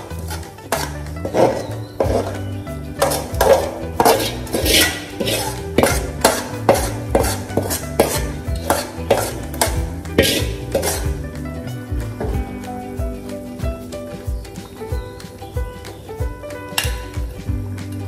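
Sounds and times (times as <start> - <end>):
metal spoon scraping a pot: 0.0 - 11.2
background music: 0.0 - 18.0.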